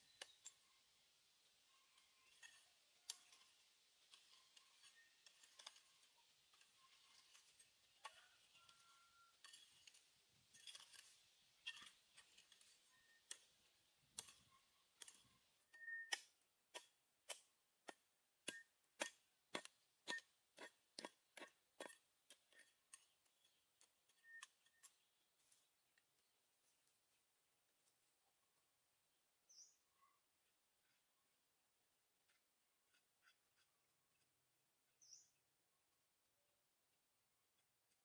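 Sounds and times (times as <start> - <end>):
hand hoe scraping dry earth: 0.0 - 0.8, 1.7 - 27.0, 32.3 - 34.3.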